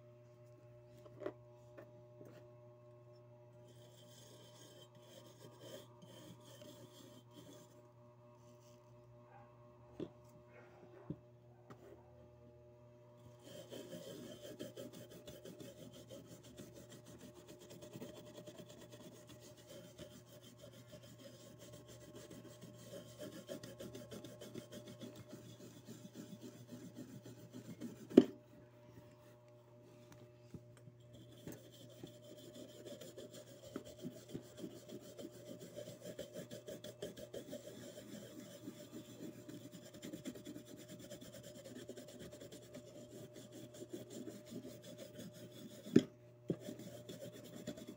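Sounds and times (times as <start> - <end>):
toothbrush scrubbing metal: 3.7 - 7.8, 13.3 - 28.2, 31.0 - 47.9.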